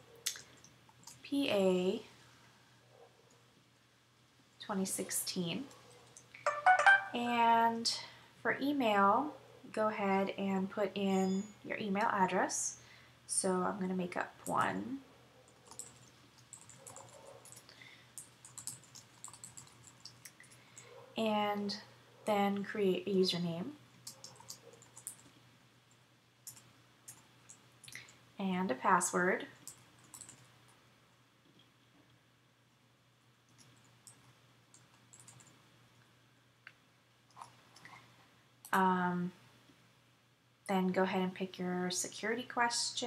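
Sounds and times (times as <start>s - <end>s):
typing on keyboard: 15.6s - 20.9s, 24.0s - 25.3s, 26.4s - 27.6s, 29.6s - 30.5s, 33.5s - 35.6s.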